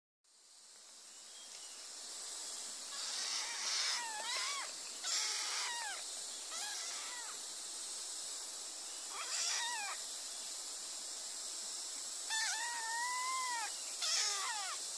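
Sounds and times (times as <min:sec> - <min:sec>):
steady background hiss: 0:00.3 - 0:14.9.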